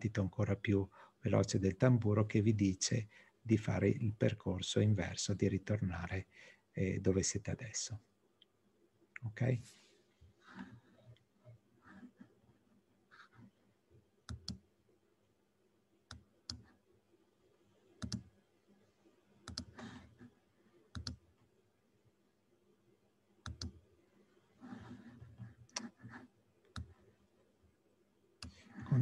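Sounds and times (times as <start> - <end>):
faint irregular clicks: 14.2 - 14.7, 16.0 - 16.8, 17.8 - 18.4, 19.4 - 20.2, 20.9 - 21.5, 23.4 - 23.8, 24.8 - 27.1, 28.4 - 28.9.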